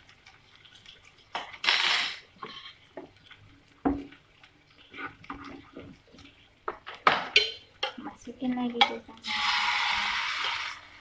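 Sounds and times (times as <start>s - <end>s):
spatula scraping frying pan: 2.4s - 2.9s, 9.2s - 11.0s.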